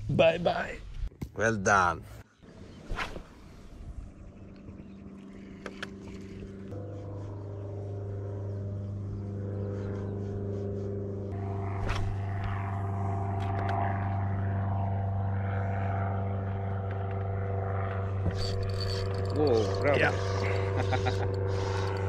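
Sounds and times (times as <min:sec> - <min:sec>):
outboard motor running: 0:04.7 - 0:11.8, 0:17.1 - 0:22.0.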